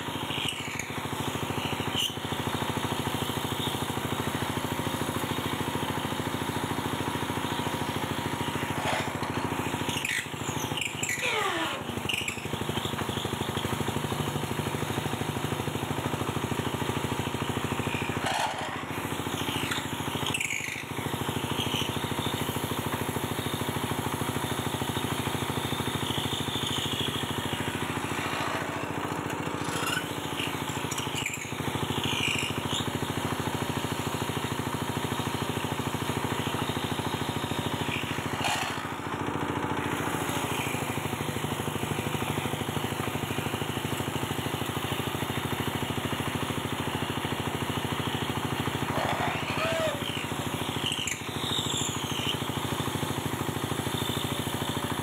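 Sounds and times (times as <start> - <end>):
small diesel engine running: 0.0 - 55.0
cutters scraping wood: 8.6 - 13.1, 18.0 - 19.1, 27.5 - 31.7, 37.8 - 40.4.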